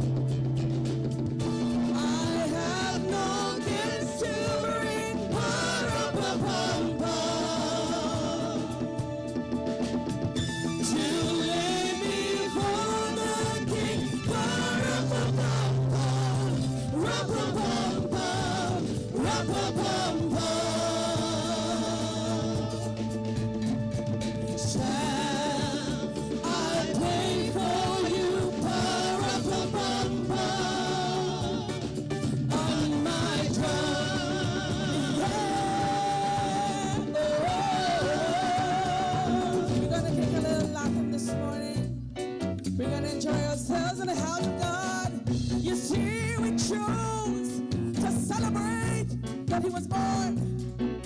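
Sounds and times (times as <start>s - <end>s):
instrumental accompaniment: 0.0s - 51.0s
live band playing: 0.0s - 51.0s
backing singers: 1.8s - 9.4s, 10.8s - 23.5s, 24.4s - 40.1s
woman singing worship song: 1.8s - 9.5s, 10.8s - 23.4s, 24.4s - 41.8s, 42.9s - 47.6s.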